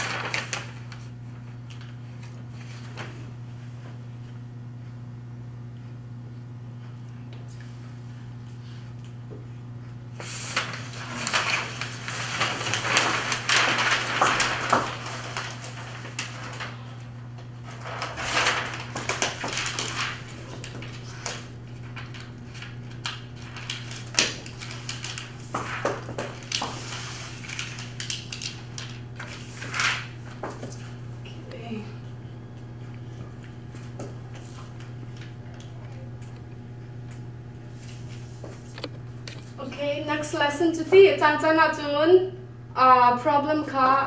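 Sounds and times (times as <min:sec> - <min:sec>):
paper rustling and crackling: 0:00.0 - 0:03.3, 0:10.2 - 0:31.1, 0:37.7 - 0:39.6
steady low hum: 0:00.0 - 0:44.0.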